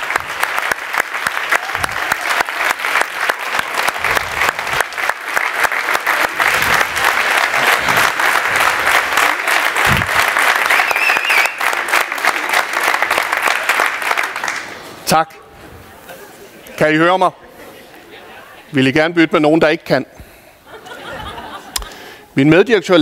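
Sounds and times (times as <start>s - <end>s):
large audience clapping: 0.0s - 15.0s.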